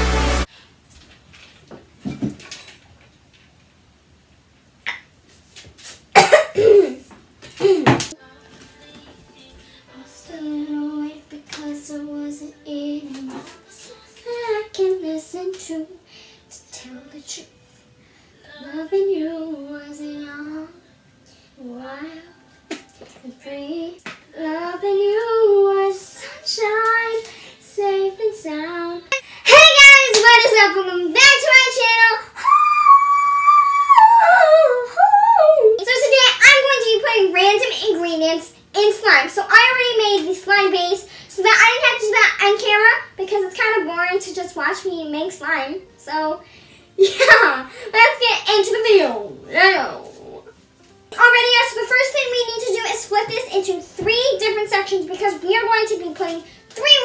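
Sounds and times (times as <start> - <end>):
girl singing: 7.6 - 17.7, 18.4 - 20.9, 21.6 - 46.4
girl making wordless sounds: 29.1 - 38.2.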